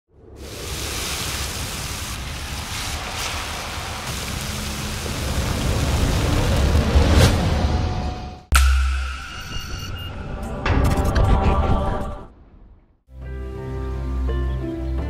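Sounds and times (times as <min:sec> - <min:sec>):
fish sizzling in hot oil: 0:00.4 - 0:06.6.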